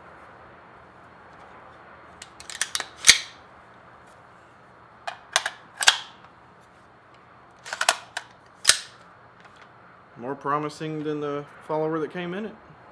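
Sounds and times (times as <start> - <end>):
rifle action clicks and clacks: 2.2 - 3.4, 5.1 - 6.2, 7.6 - 9.7.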